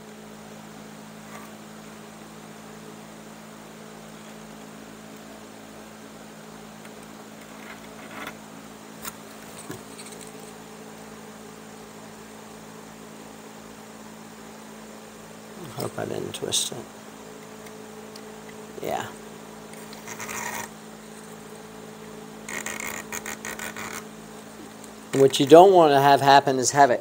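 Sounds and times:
steady low hum: 0.0s - 27.0s
chair cane clicks and rustles: 6.8s - 8.4s, 9.0s - 11.0s, 19.7s - 25.7s.

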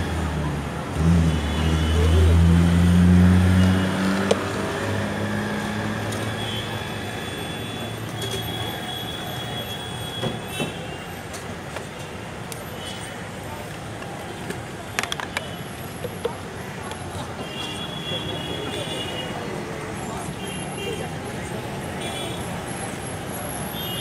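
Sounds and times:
large vehicle engine droning: 0.0s - 7.2s.

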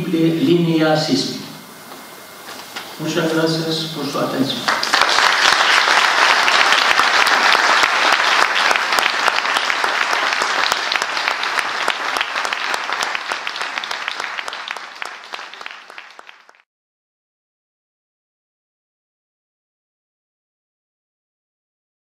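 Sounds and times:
audience applauding: 4.6s - 16.6s.

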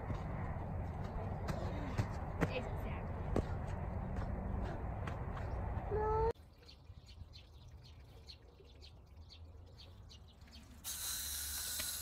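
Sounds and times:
small birds chirping: 5.4s - 12.0s
hose spraying water: 10.5s - 12.0s.

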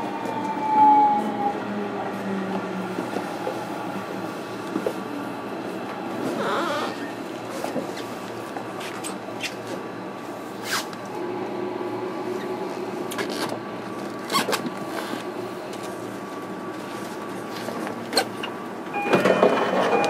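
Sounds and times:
electric train equipment humming: 8.3s - 20.0s.

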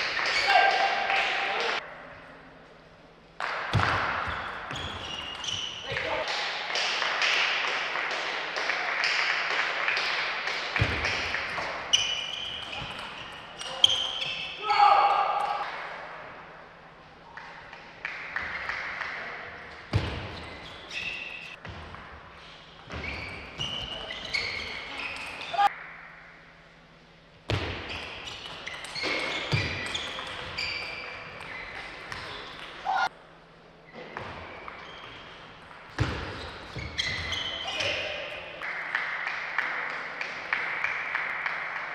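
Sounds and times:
shoes squeaking on floor: 4.2s - 6.3s, 11.5s - 14.6s, 19.9s - 21.6s, 22.9s - 25.7s, 27.8s - 33.1s, 33.9s - 38.2s.

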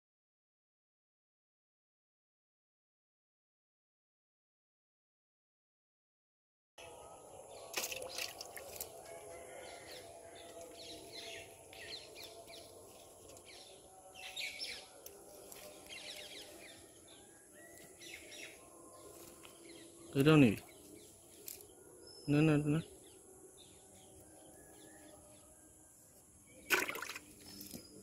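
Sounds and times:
outdoor background noise: 6.8s - 28.0s.

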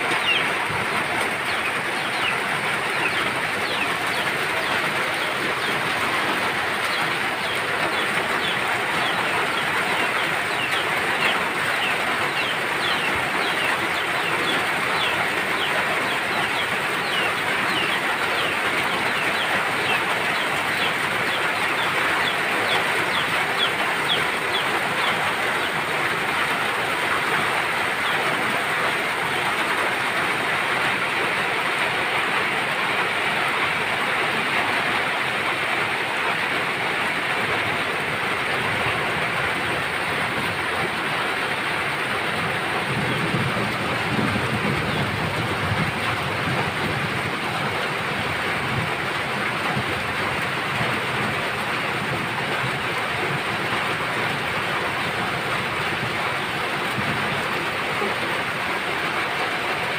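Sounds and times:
heavy rain falling: 0.0s - 59.9s
water pouring off a roof: 0.0s - 59.9s.

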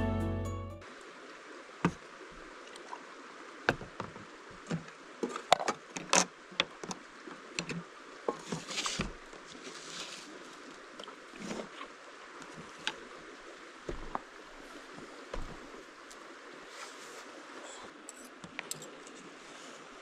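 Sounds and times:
background music: 0.0s - 0.8s.

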